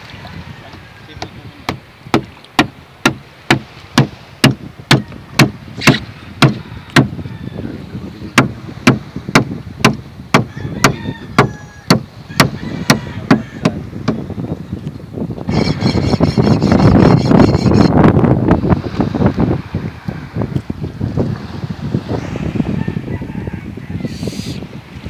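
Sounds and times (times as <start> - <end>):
machete chopping into fish: 4.9 - 6.6.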